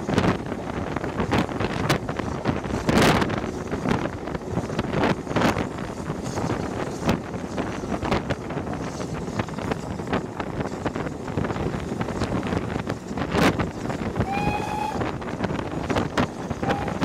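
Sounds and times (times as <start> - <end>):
wind buffeting microphone: 0.0 - 17.0
steam whistle blast: 14.2 - 15.1, 16.6 - 17.0.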